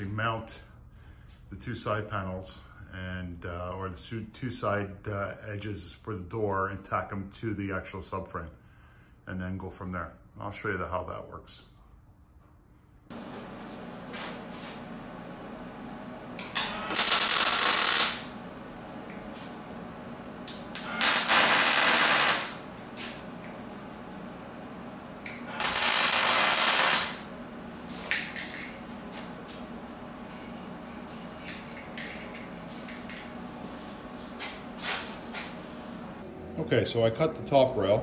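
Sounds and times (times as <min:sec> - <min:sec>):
welder bursts: 0:16.3 - 0:24.1, 0:25.2 - 0:29.6.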